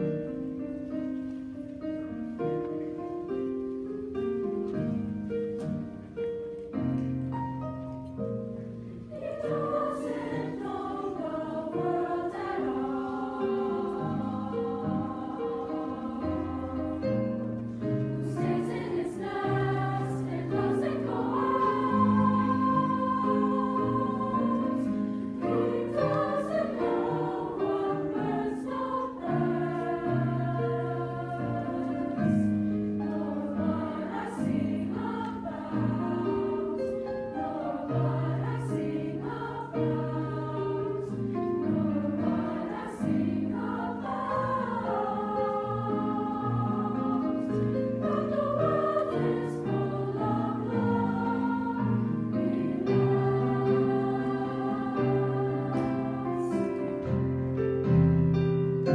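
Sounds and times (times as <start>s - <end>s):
piano accompaniment: 0.0s - 58.9s
choir singing: 8.6s - 58.0s.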